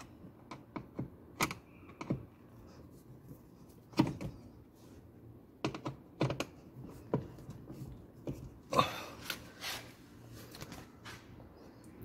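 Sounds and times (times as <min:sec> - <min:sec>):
sharp plastic clicks and knocks: 0:05.6 - 0:07.5.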